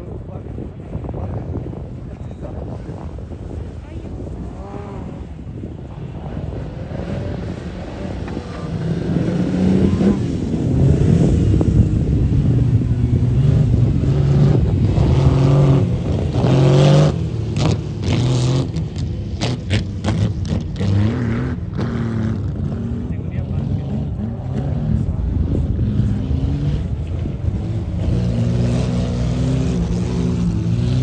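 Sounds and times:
sports car engines revving: 0.0s - 31.0s.

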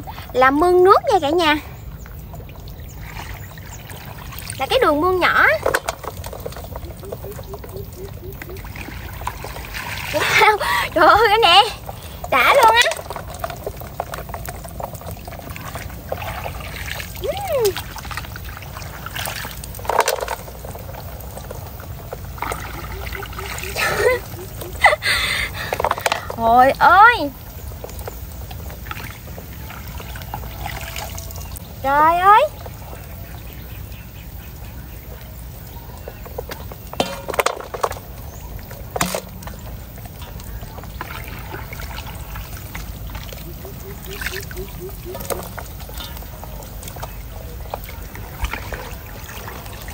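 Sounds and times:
muddy water trickling and pouring: 0.0s - 49.9s
water splashes: 0.0s - 49.9s.

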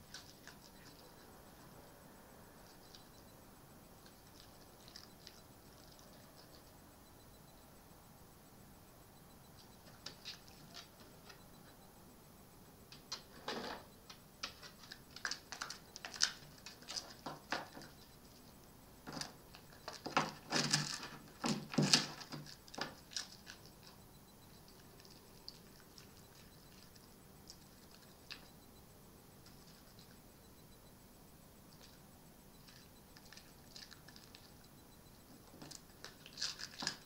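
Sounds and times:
fox crunching food: 0.0s - 1.7s, 4.0s - 6.8s, 19.1s - 24.0s, 24.6s - 28.5s, 32.6s - 34.6s, 35.4s - 37.0s.

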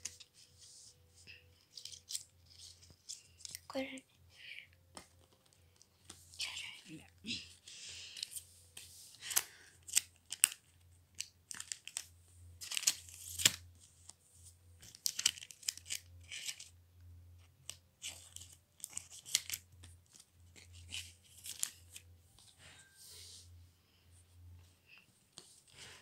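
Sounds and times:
faint steady hum: 0.0s - 26.0s
cards and pages snapping: 1.7s - 3.7s, 9.2s - 13.6s, 14.8s - 16.7s, 17.6s - 22.0s
plastic sleeves rustling and crinkling: 7.2s - 16.8s, 17.7s - 22.6s.

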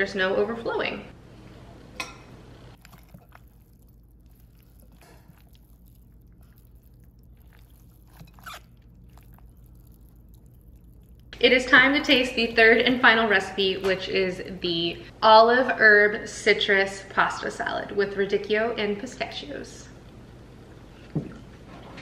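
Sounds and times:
pasta salad squishing: 2.8s - 12.9s.

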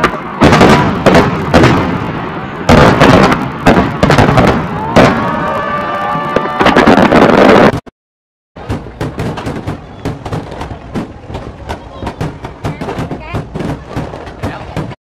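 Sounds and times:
firework shells booming and crackling: 0.0s - 7.8s, 8.6s - 15.0s
firework whistles: 9.2s - 11.1s.

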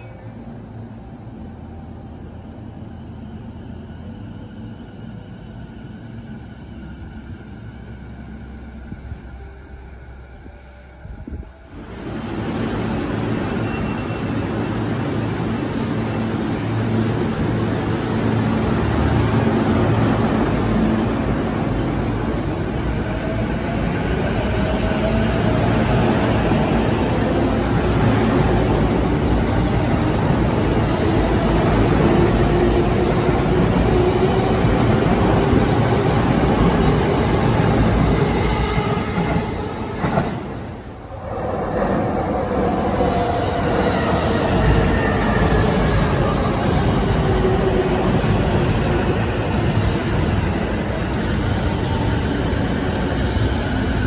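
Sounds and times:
electric train passing: 0.0s - 54.0s
train wheels on rails: 11.3s - 54.0s.

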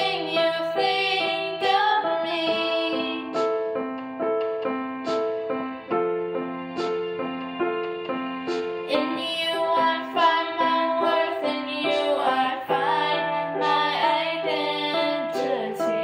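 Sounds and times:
woman singing: 0.0s - 3.4s, 8.9s - 16.0s
digital piano broken chords: 0.0s - 16.0s.

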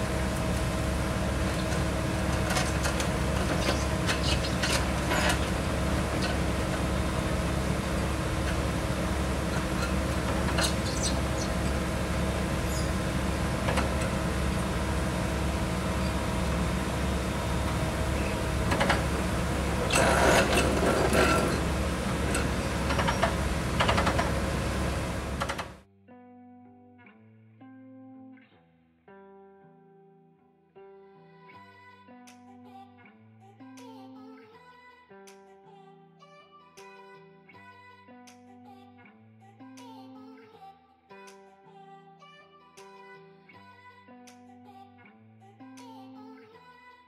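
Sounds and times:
drilling rig engine running: 0.0s - 25.8s
metallic clanks of drill pipe: 1.5s - 7.0s, 17.7s - 25.7s.

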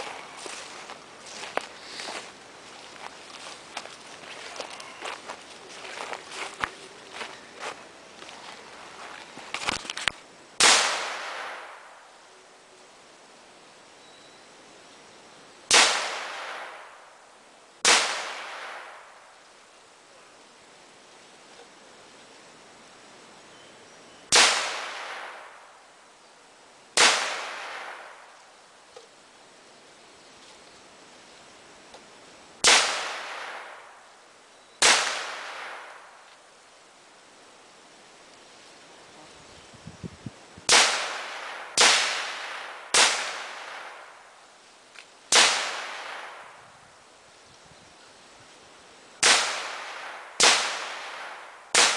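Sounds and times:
gunshots with long echo: 10.6s - 12.2s, 15.7s - 17.2s, 17.8s - 19.3s, 24.3s - 25.8s, 27.0s - 28.3s, 32.6s - 34.2s, 34.8s - 36.2s, 40.7s - 44.4s, 45.3s - 46.6s, 49.2s - 51.9s.

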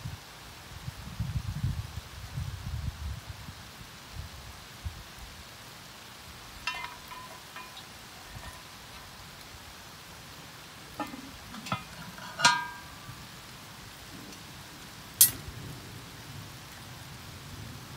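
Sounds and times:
iron tools clinking: 6.6s - 9.1s, 11.0s - 13.3s
iron lid clanking on pot: 6.6s - 9.2s, 11.0s - 13.4s.

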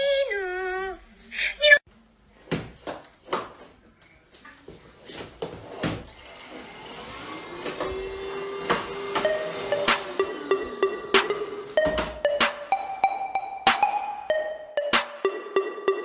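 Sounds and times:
vacuum cleaner motor humming: 6.2s - 10.6s
sharp knocks and thumps: 11.2s - 12.7s.

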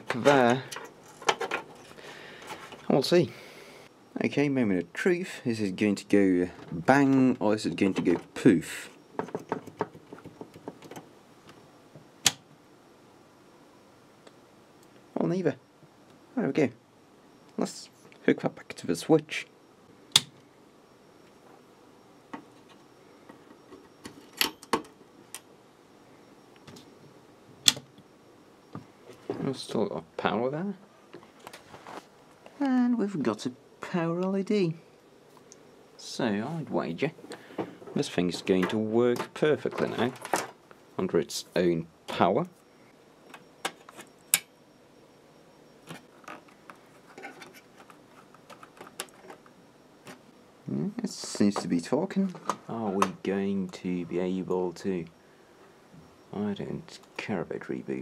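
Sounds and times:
plastic handling noises: 45.8s - 50.3s.

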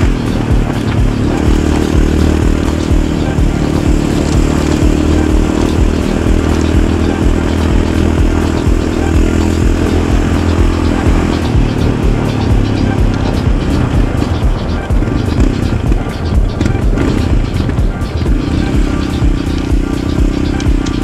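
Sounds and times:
atv engine running: 0.0s - 21.0s.

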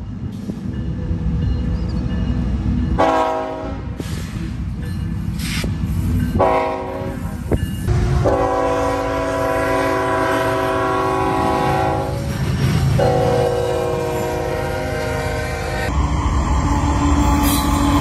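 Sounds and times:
train rumble: 0.0s - 18.0s
locomotive horn blasts: 3.0s - 3.9s, 6.4s - 7.3s, 7.9s - 12.3s, 13.0s - 15.9s.

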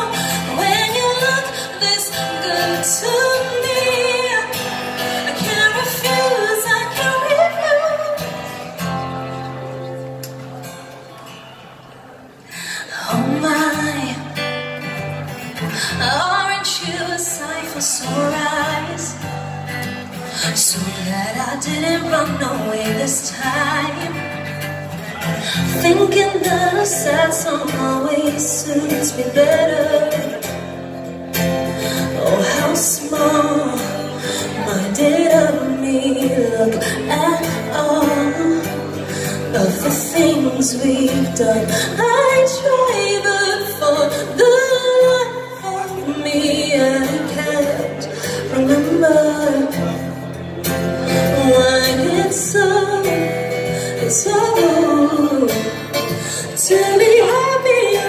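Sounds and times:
woman singing into a microphone: 0.0s - 9.6s, 12.5s - 58.0s
acoustic guitar: 0.0s - 58.0s.

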